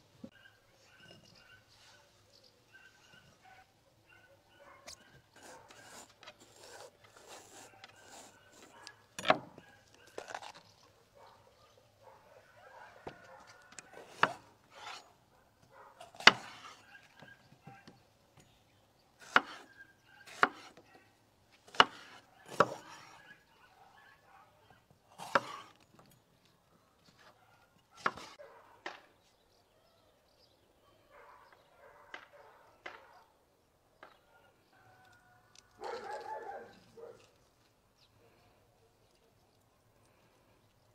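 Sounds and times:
rubbing on a wooden board: 5.4s - 8.8s.

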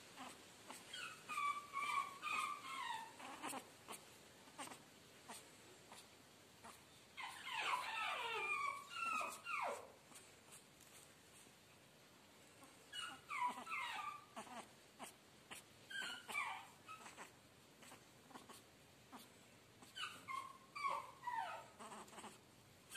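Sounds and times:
puppy whimpering: 0.2s - 10.6s, 12.6s - 22.9s.

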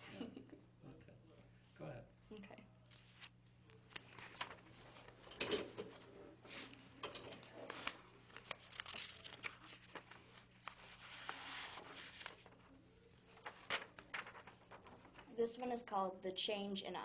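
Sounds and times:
low electrical hum: 0.0s - 17.0s
paper rustling and crinkling: 2.9s - 15.3s.

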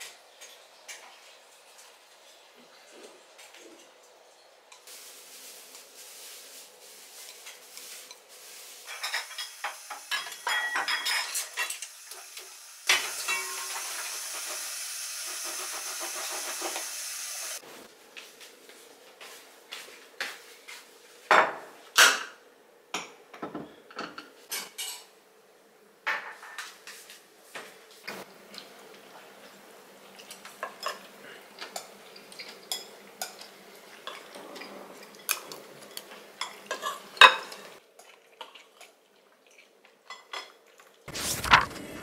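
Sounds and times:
steady hiss: 4.8s - 10.5s
dishes and utensils clattering: 7.2s - 11.9s, 12.9s - 14.2s, 23.0s - 25.1s, 30.2s - 37.8s.

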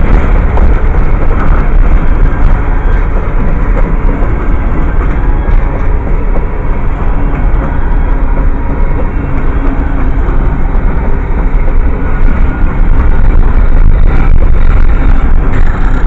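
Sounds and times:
freight train wheels rumbling on rails: 0.0s - 16.0s.

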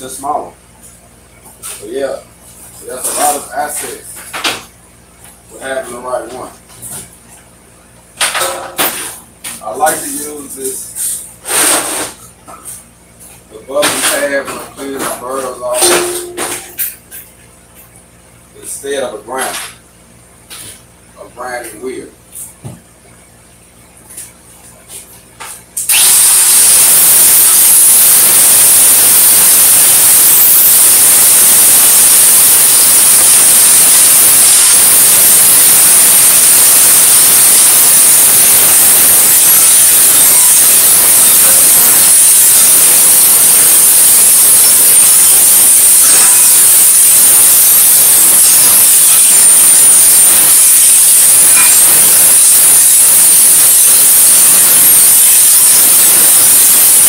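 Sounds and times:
hand grinder hissing on steel: 25.9s - 57.0s.

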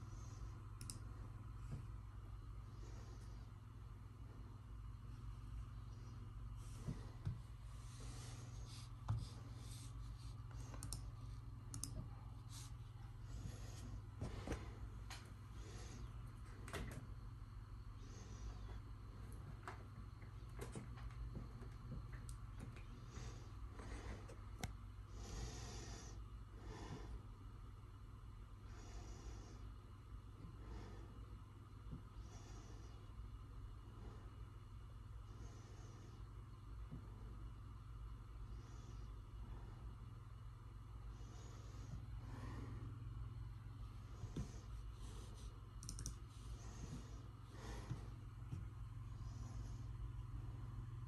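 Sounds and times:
low steady hum: 0.0s - 51.0s
soft breathing: 0.0s - 51.0s
mouse clicks: 11.7s - 12.1s, 45.8s - 46.2s.

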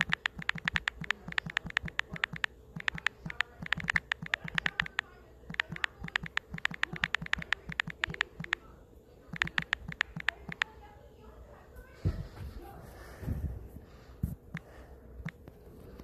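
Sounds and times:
smartphone keyboard clicks: 0.0s - 8.6s, 9.4s - 10.7s.

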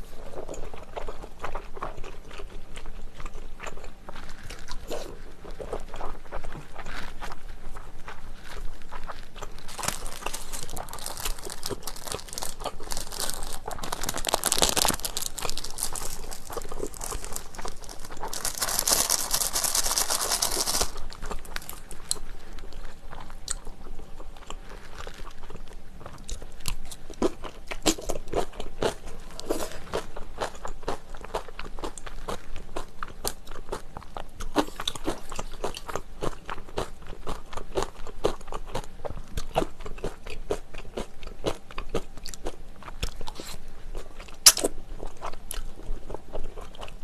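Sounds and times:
chewing and smacking noodles: 0.2s - 47.0s
packet rustling: 9.6s - 22.3s.

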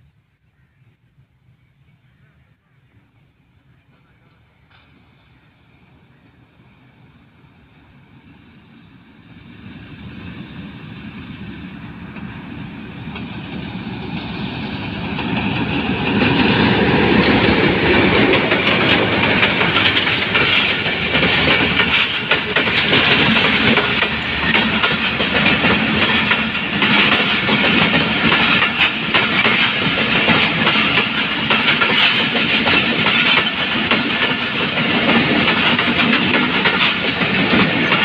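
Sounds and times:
diesel locomotive passing: 3.0s - 38.0s
train wheels clattering over rail joints: 11.4s - 38.0s.

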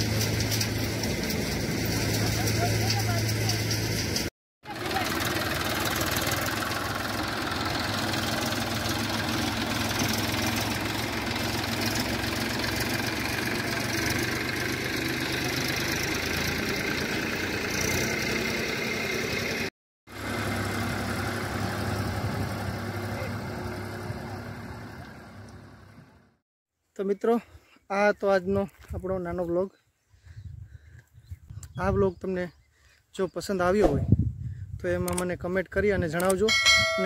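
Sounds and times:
diesel tractor engine running: 0.0s - 26.4s.

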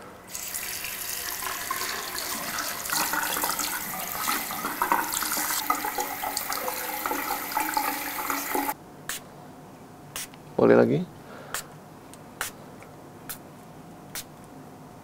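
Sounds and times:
tap water running into sink: 0.3s - 8.8s.

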